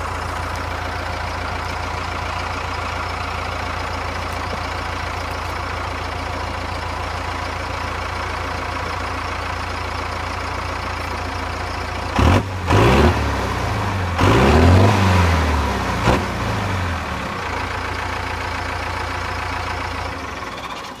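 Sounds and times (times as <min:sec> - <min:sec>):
diesel engine idling and revving: 0:00.0 - 0:21.0.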